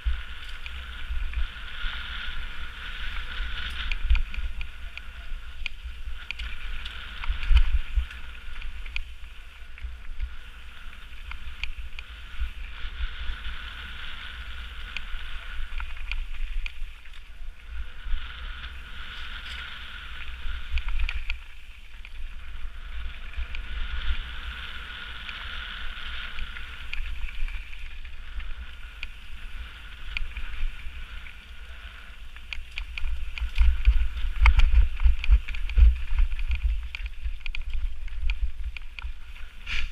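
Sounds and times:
tyre and wind hiss: 0:00.0 - 0:39.9
bike rumbling over rocky trail: 0:32.4 - 0:39.9.

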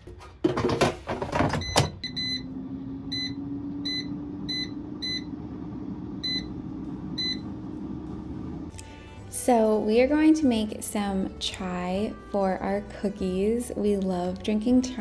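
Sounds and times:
steady low hum: 0:02.3 - 0:09.2.

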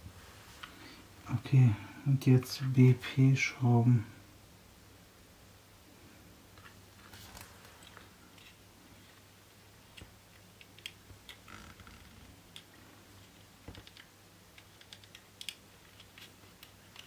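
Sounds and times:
low steady hum: 0:00.0 - 0:17.0
plastic parts clicking and tapping: 0:09.9 - 0:11.5, 0:12.5 - 0:17.0.

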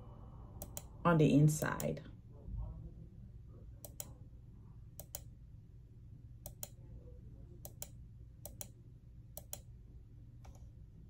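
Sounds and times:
computer mouse clicking: 0:00.6 - 0:00.9, 0:03.8 - 0:04.2, 0:05.0 - 0:05.3, 0:06.4 - 0:06.8, 0:07.6 - 0:08.8, 0:09.4 - 0:09.7, 0:10.4 - 0:10.7.

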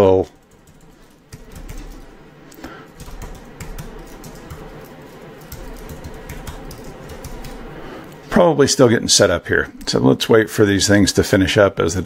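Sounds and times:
computer keyboard typing: 0:00.2 - 0:02.2, 0:02.9 - 0:07.9.

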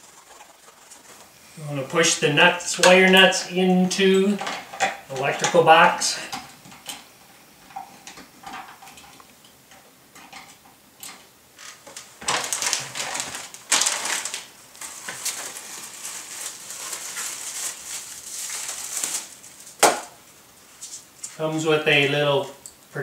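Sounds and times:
crinkly rustling: 0:00.0 - 0:06.4, 0:11.6 - 0:21.5.

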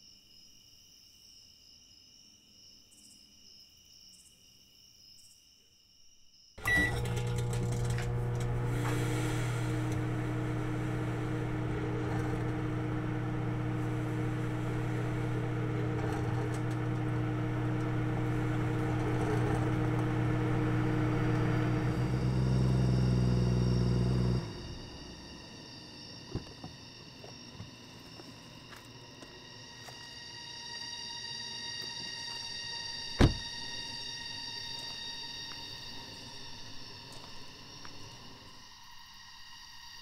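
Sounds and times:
microwave oven humming: 0:06.6 - 0:26.8.

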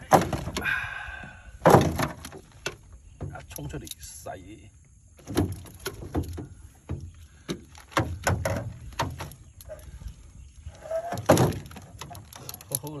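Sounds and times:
thuds and knocks on boat hull: 0:01.6 - 0:02.4, 0:05.2 - 0:09.3.

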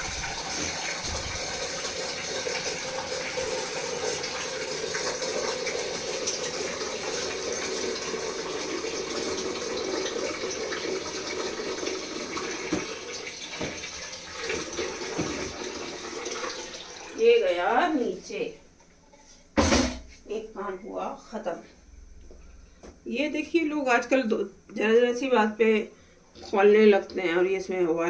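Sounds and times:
tap water running into sink: 0:00.0 - 0:17.2.

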